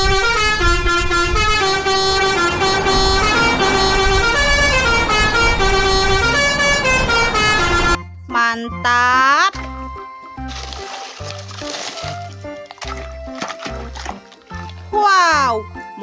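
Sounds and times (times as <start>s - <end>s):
engine and road rumble: 0.0s - 8.3s, 9.5s - 16.0s
truck musical horn playing tune: 0.0s - 9.3s.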